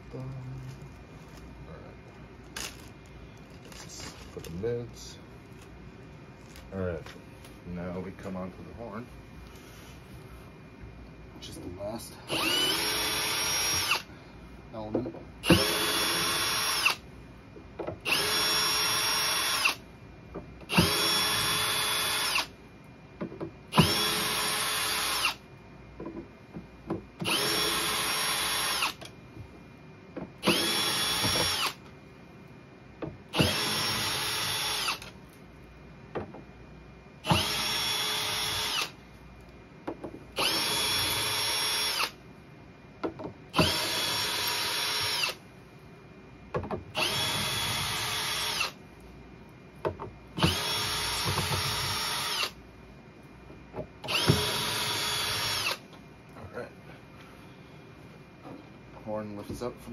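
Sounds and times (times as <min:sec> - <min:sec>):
cordless drill whine: 0:12.3 - 0:14.1, 0:15.4 - 0:17.0, 0:18.1 - 0:19.8, 0:20.7 - 0:22.5, 0:23.7 - 0:25.4, 0:27.2 - 0:29.1, 0:30.4 - 0:31.8, 0:33.3 - 0:35.1, 0:37.2 - 0:39.0, 0:40.4 - 0:42.2, 0:43.5 - 0:45.4, 0:47.0 - 0:48.8, 0:50.4 - 0:52.6, 0:54.0 - 0:55.8
drill trigger click: 0:54.1 - 0:55.8.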